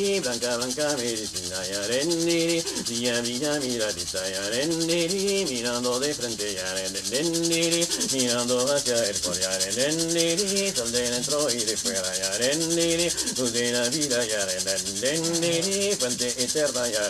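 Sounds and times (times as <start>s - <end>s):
leaf rattle swishing: 0.0s - 17.0s
man chanting: 0.0s - 17.0s.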